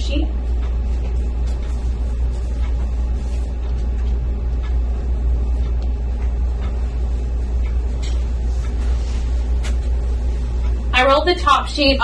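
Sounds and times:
steady low rumble: 0.0s - 12.0s
bed sheets rustling: 8.2s - 10.5s.

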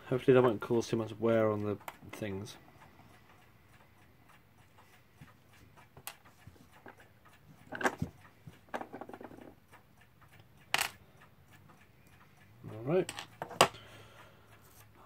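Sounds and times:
knock on clock movement: 5.2s - 9.8s.

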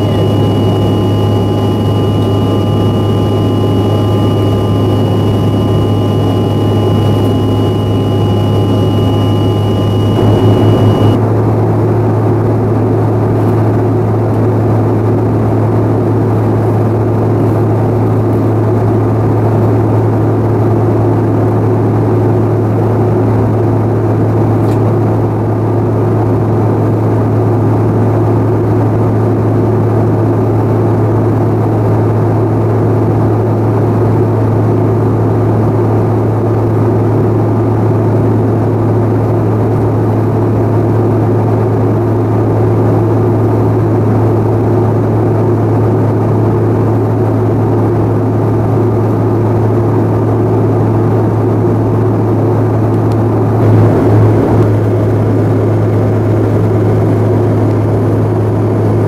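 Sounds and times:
airliner cabin engine drone: 0.0s - 59.0s.

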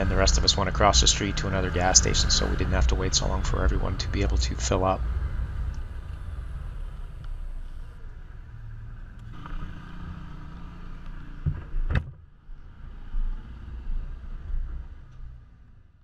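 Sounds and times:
atv engines rumbling: 0.0s - 11.9s.

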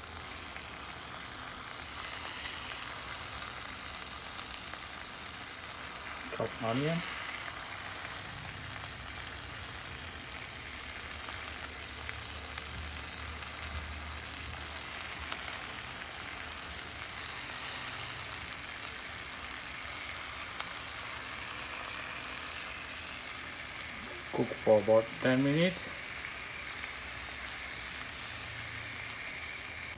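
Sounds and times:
sizzling in a frying pan: 0.0s - 29.9s.

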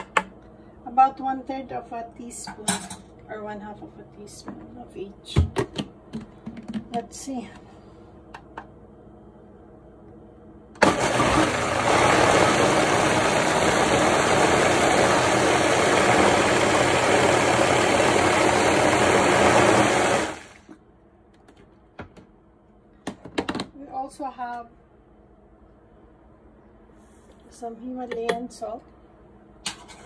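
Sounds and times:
blender running: 10.8s - 20.8s.

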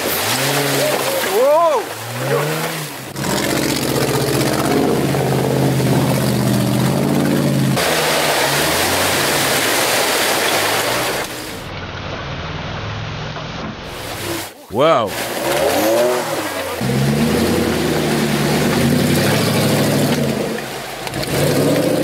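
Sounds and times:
engine revving hard: 0.0s - 1.2s, 2.0s - 10.0s, 15.1s - 22.0s
tyres churning mud: 0.0s - 12.2s, 12.9s - 22.0s.

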